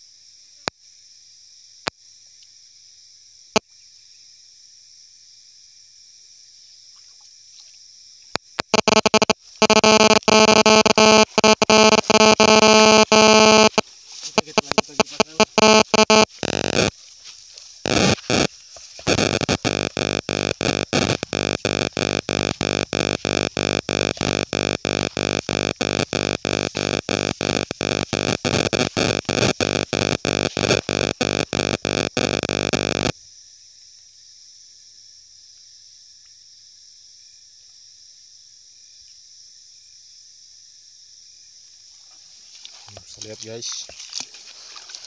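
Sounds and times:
pulsing microphone buzz: 8.4s - 17.0s, 17.8s - 33.1s.

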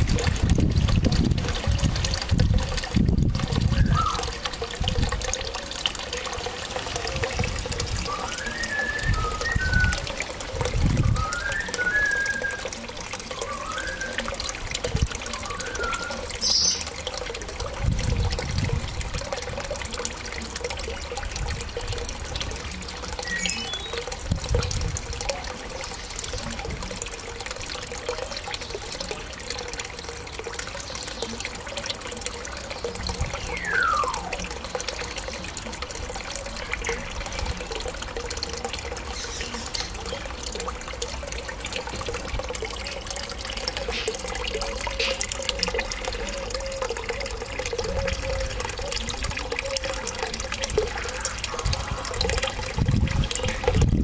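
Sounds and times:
water trickling: 0.0s - 54.0s
parrot falling whistle: 33.6s - 34.2s.

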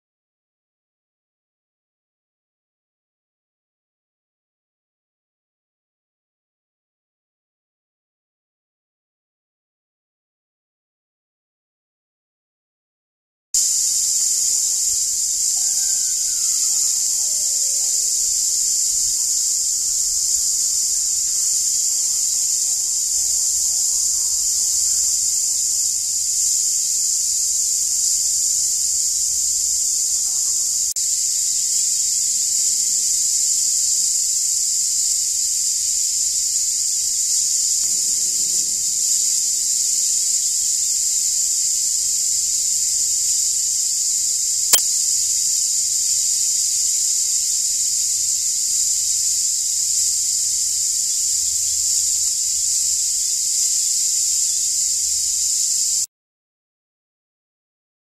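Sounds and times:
cicadas buzzing: 13.6s - 56.1s.

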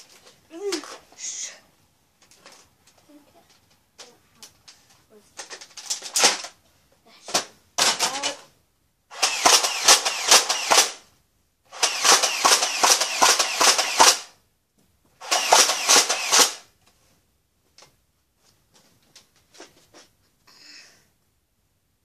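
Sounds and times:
toy blaster firing bursts: 9.1s - 11.0s, 11.7s - 14.4s, 15.2s - 16.7s.

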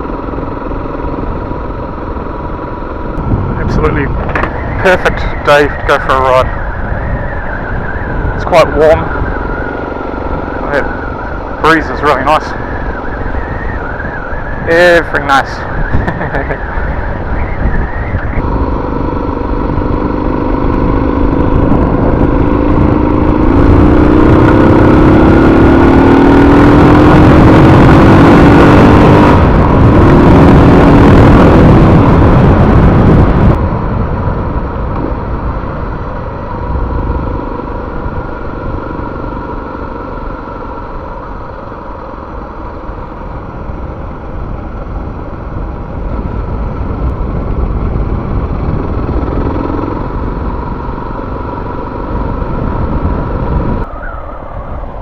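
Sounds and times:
motorcycle engine accelerating: 0.0s - 55.0s
wind rush: 1.5s - 55.0s.

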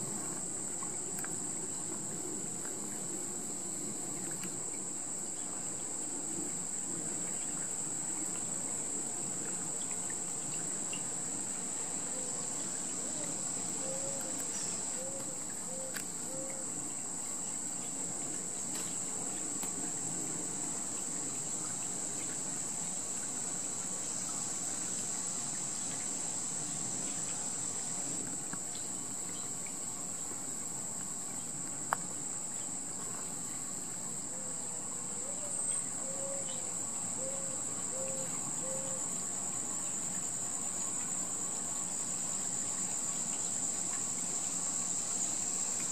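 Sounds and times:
insects chorus: 0.0s - 45.9s.

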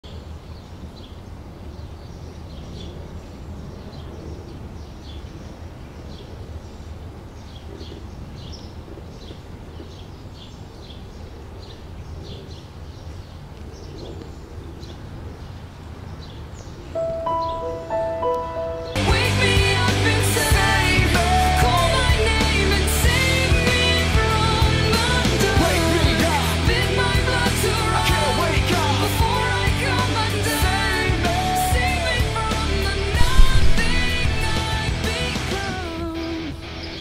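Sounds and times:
small birds chirping: 0.0s - 19.0s, 36.7s - 37.0s.

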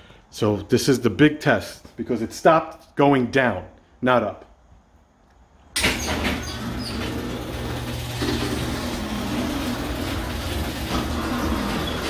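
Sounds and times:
garage door opener motor hum: 5.8s - 12.0s
chain and trolley noise: 6.5s - 12.0s.

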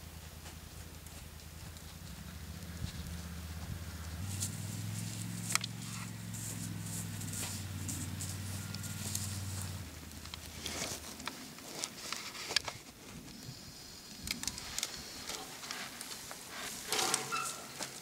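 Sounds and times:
rustling hay: 1.8s - 13.4s, 14.5s - 18.0s
brief squeak: 16.9s - 17.8s.

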